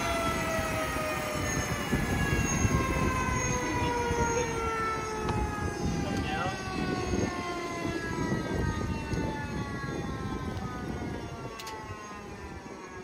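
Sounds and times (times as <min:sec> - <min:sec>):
turbine engine winding down: 0:00.0 - 0:13.0.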